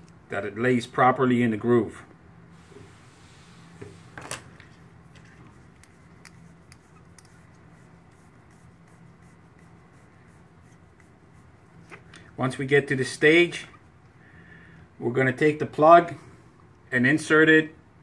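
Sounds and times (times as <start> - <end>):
steady low hum: 0.0 - 18.0
small clicks and rubbing: 3.8 - 9.8.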